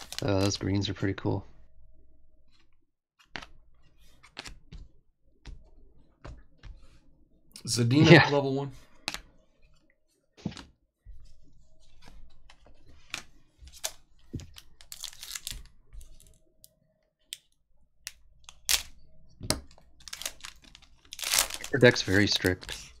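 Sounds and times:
foil wrapper crinkling and tearing: 0:00.0 - 0:00.6, 0:13.8 - 0:15.7, 0:20.0 - 0:23.0.

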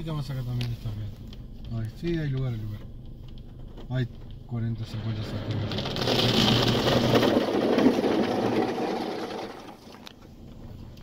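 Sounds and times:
water drumming on car roof: 0:05.5 - 0:10.1.

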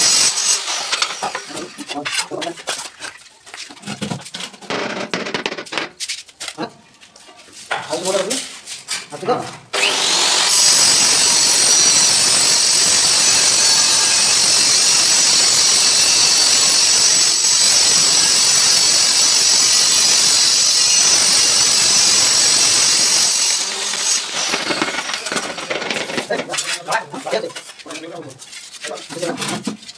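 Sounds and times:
power tool high-pitched whine: 0:09.8 - 0:25.1.

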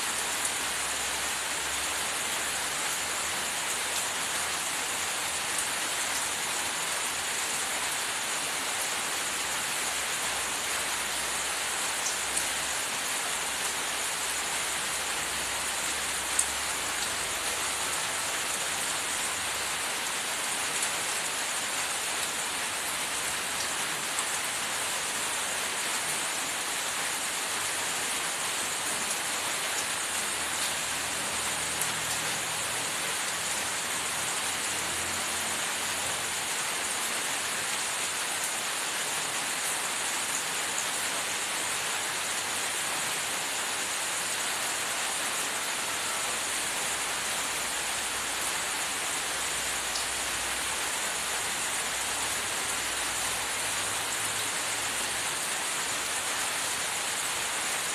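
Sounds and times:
steady hissing noise: 0:00.0 - 0:57.9.

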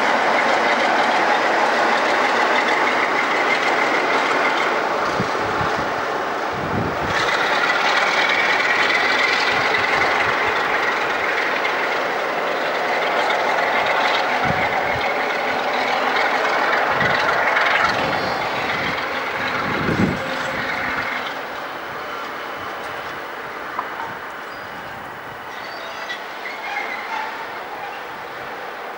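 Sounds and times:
diesel locomotive engine running: 0:00.0 - 0:28.9
wheels on rail: 0:00.0 - 0:28.9
high-pitched wheel squeal: 0:06.7 - 0:23.1, 0:24.0 - 0:28.6.

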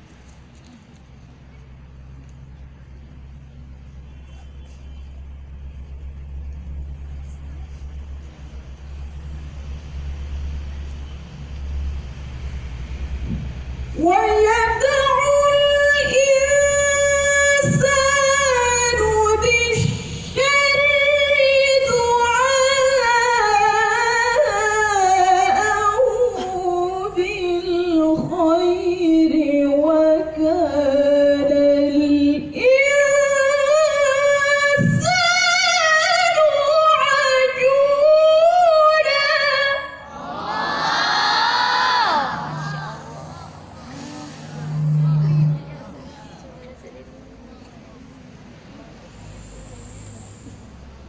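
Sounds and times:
woman reciting melodically over loudspeaker: 0:13.9 - 0:40.6, 0:41.3 - 0:46.5.

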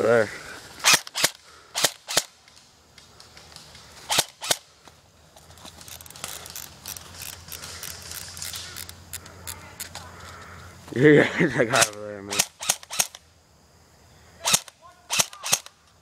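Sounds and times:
airsoft guns firing sharp snaps: 0:00.8 - 0:04.7, 0:11.7 - 0:13.2, 0:14.4 - 0:16.0.

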